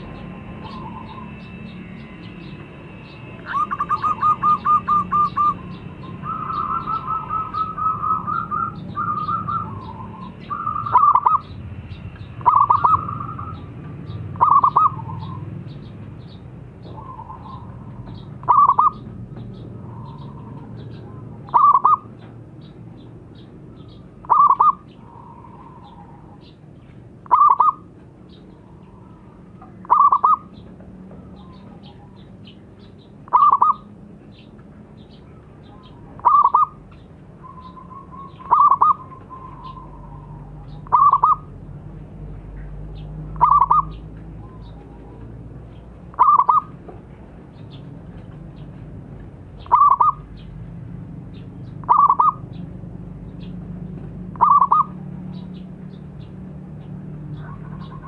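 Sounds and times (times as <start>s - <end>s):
dove cooing: 3.4s - 11.5s, 12.4s - 13.6s, 14.3s - 15.5s, 16.8s - 22.2s, 24.2s - 26.5s, 27.2s - 27.9s, 28.5s - 30.6s, 33.3s - 33.9s, 35.6s - 41.6s, 43.3s - 45.3s, 46.1s - 46.8s, 49.6s - 50.3s, 51.8s - 52.4s, 54.3s - 55.2s, 57.4s - 58.0s.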